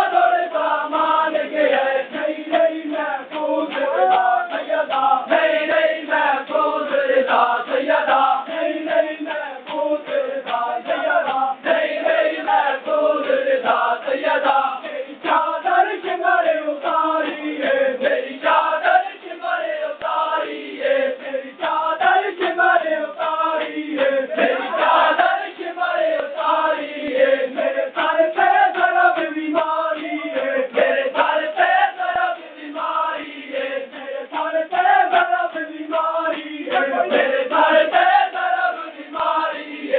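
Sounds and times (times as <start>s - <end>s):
men chanting in unison: 0.0s - 39.9s
hands slapping on chests: 8.9s - 11.8s.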